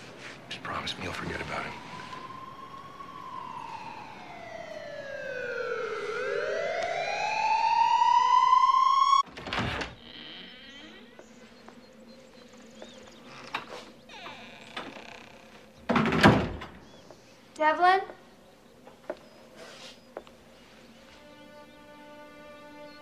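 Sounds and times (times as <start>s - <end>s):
sliding synthesizer tone: 1.5s - 9.2s.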